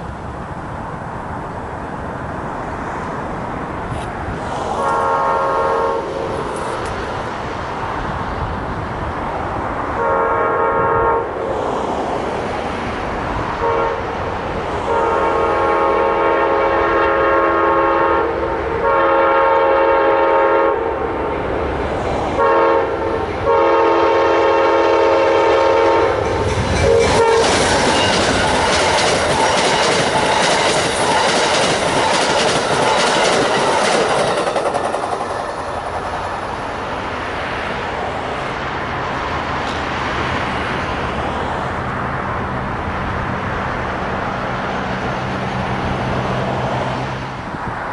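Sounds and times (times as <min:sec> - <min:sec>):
locomotive air horn blasts: 0:04.7 - 0:06.2, 0:10.0 - 0:11.4, 0:13.6 - 0:14.2, 0:14.8 - 0:20.9, 0:22.4 - 0:26.2, 0:26.8 - 0:27.6
train wheels clickety-clack: 0:06.2 - 0:07.3, 0:26.1 - 0:36.6.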